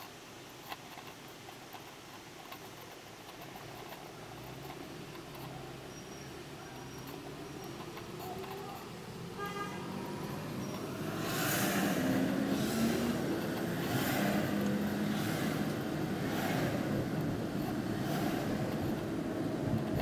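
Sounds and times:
road noise: 0:00.0 - 0:20.0
car engine from inside cabin: 0:04.0 - 0:20.0.

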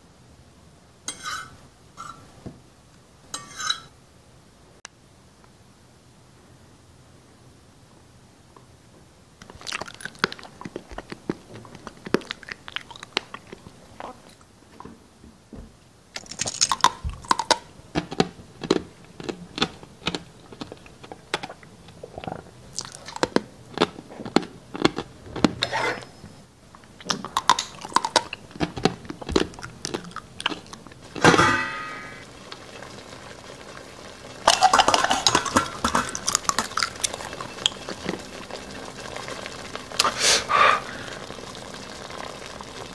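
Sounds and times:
steady hiss with crackles: 0:00.0 - 0:42.9
crunchy chewing and biting: 0:09.4 - 0:14.2, 0:16.2 - 0:26.1, 0:27.0 - 0:31.2.

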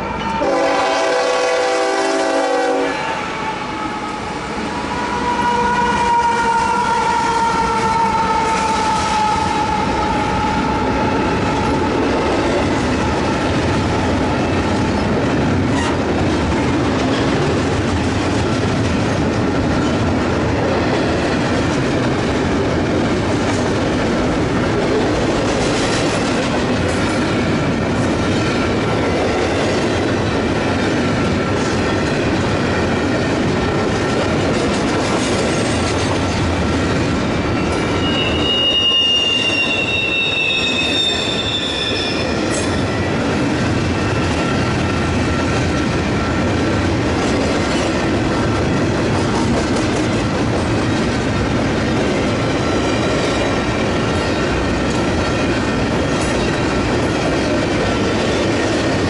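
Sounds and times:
train wheels rumbling on rail: 0:00.0 - 0:59.0
train wheels squealing: 0:37.5 - 0:43.2.

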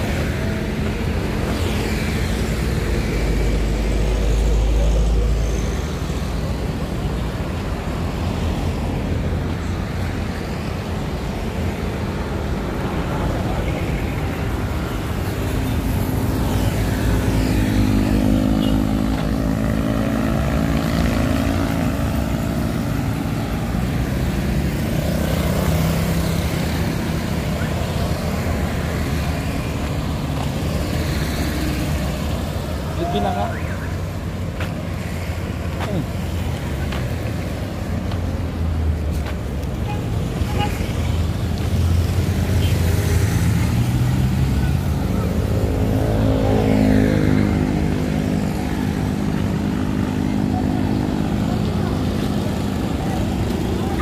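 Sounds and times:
cars passing: 0:00.0 - 0:54.0
motorbikes passing: 0:00.0 - 0:54.0
loud engine going by: 0:15.8 - 0:34.7, 0:41.8 - 0:54.0.

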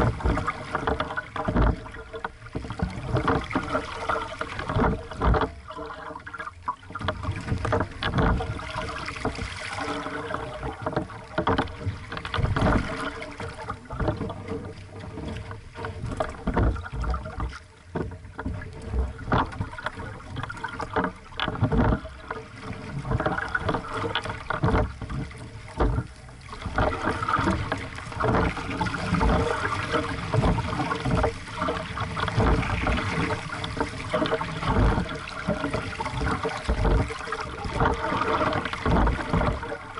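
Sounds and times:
knocks and thuds: 0:00.0 - 0:05.6, 0:07.0 - 0:09.5, 0:15.2 - 0:22.2, 0:23.0 - 0:39.7
water splashing against hull: 0:00.0 - 0:39.9.

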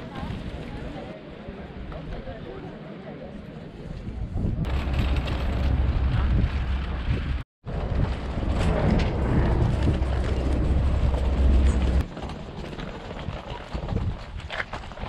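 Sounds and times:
wind buffeting microphone: 0:03.8 - 0:15.0
luggage wheels rolling: 0:04.7 - 0:15.0.

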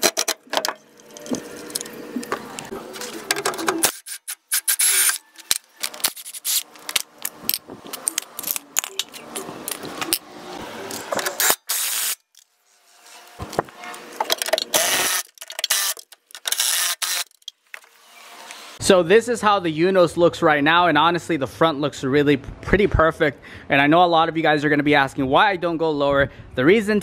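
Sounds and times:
tools clicking and clanking: 0:00.0 - 0:02.4, 0:03.0 - 0:10.3, 0:10.9 - 0:12.5, 0:14.2 - 0:17.8.

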